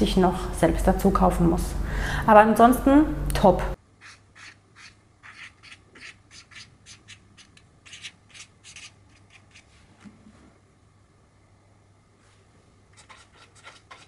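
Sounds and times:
marker writing on paper: 4.0s - 9.6s.

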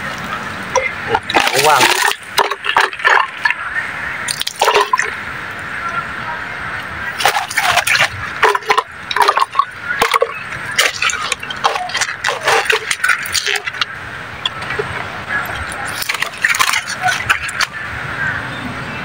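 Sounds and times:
sharp clicks and rattles: 0.7s - 3.6s, 4.3s - 5.1s, 7.2s - 17.8s.

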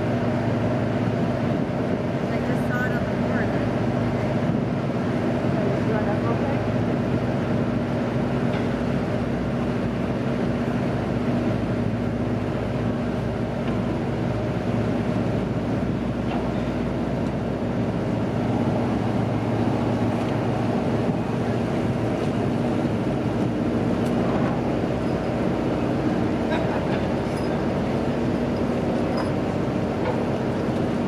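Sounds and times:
boat engine humming: 0.0s - 31.0s
wind buffeting microphone: 14.5s - 27.1s.

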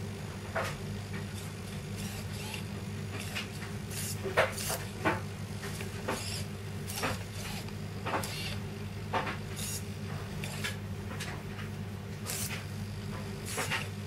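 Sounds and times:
steady low hum: 0.0s - 14.0s
servo motors whirring: 1.4s - 5.0s, 5.7s - 8.6s, 9.5s - 10.8s, 12.2s - 12.8s, 13.4s - 14.0s.

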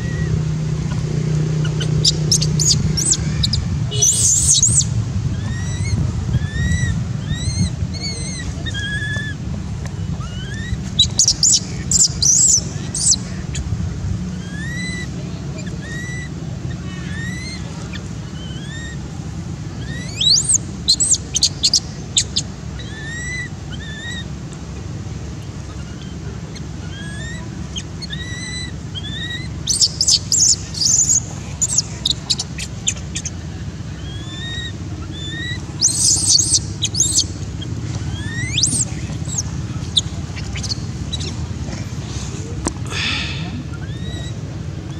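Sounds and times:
shrill high chirps: 34.0s - 37.3s.

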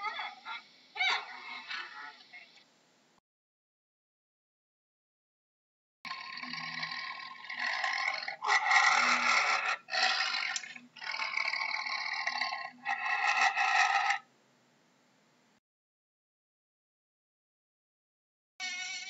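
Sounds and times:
tiger growling: 6.1s - 14.2s.

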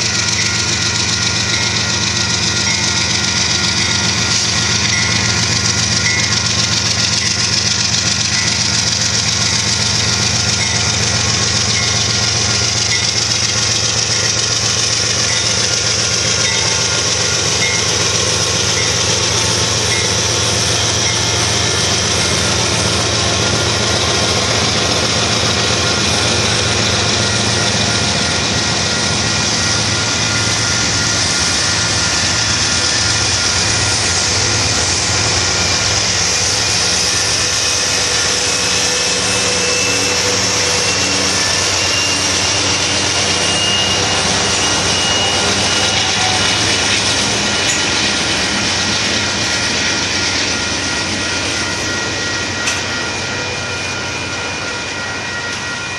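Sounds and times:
crossing bell dinging: 0.0s - 55.9s
locomotive engines droning: 0.0s - 55.9s
wheels rumbling on rail: 0.0s - 55.9s.

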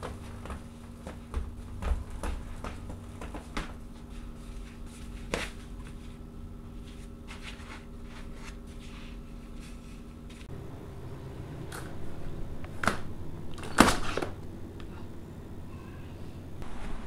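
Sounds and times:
slippers shuffling on tiled floor: 0.0s - 10.5s
low hum: 0.0s - 17.0s.

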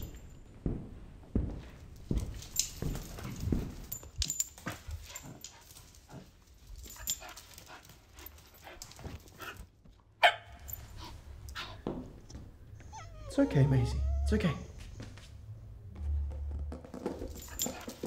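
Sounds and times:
dog barking: 10.2s - 10.7s.

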